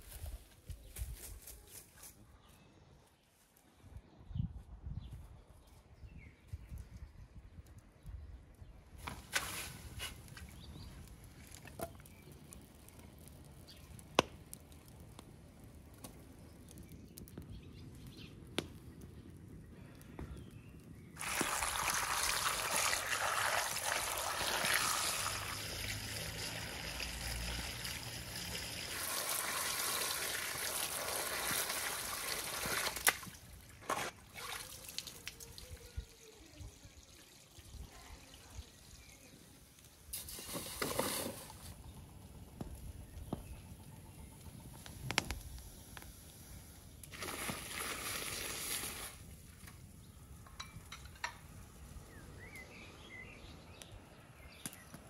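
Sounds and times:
water splashing into metal bowl: 21.2s - 33.3s, 34.0s - 35.5s.

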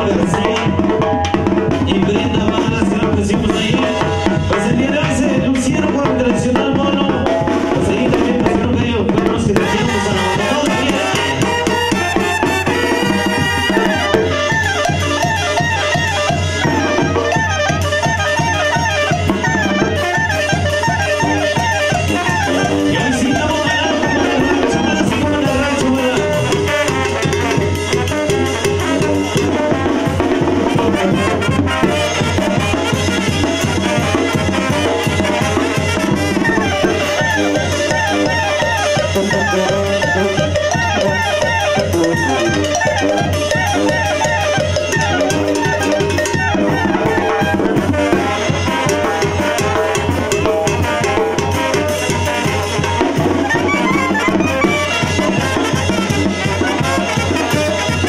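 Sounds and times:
brass band playing: 0.0s - 58.0s
drums and cymbal beat: 0.0s - 58.0s
sousaphone bass: 0.0s - 58.0s.

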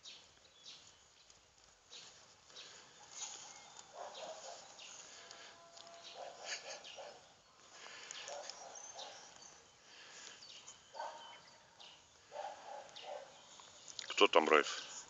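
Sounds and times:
dog snuffling: 1.9s - 7.2s.

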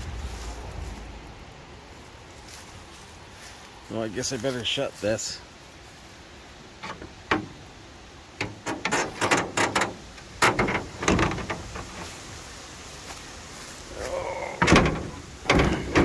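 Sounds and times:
metal panel clanking and banging: 6.8s - 7.6s, 8.4s - 12.1s, 14.6s - 16.0s.

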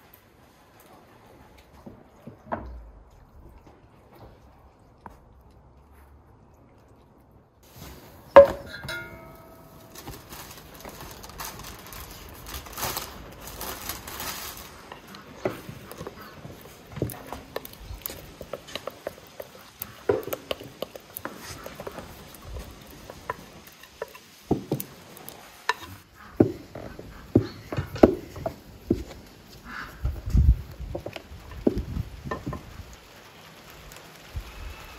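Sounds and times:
dish clinking: 8.4s - 9.9s
utensils tapping bowls and pans: 8.4s - 10.1s.

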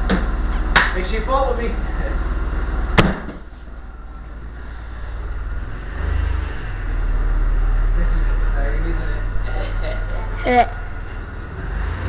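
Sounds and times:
car engine idling: 0.0s - 12.0s
sharp thump: 3.0s - 3.5s.

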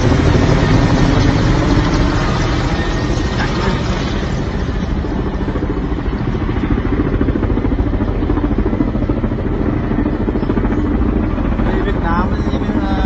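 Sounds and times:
helicopter rotor chopping: 0.0s - 13.0s.

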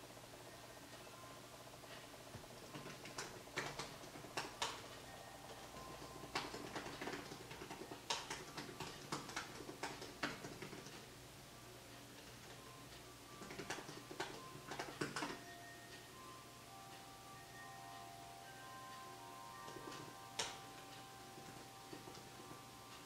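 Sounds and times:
laptop keyboard typing: 2.4s - 11.1s, 12.3s - 15.5s, 19.5s - 23.0s.

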